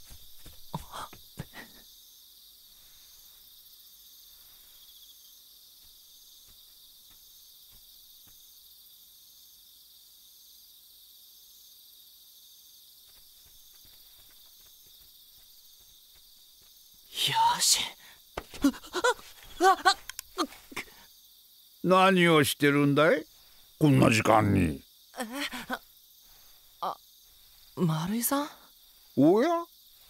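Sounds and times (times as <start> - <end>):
quick footsteps: 0.0 - 1.5, 13.0 - 17.1, 18.4 - 20.7
crickets chirping: 0.0 - 30.0.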